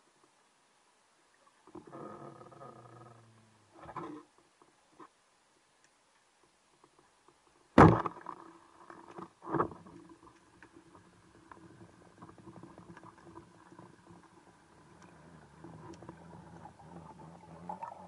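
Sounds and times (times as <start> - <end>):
faint line clicking: 5.8 - 7.6, 9.9 - 18.0
dull thump: 7.8 - 8.2.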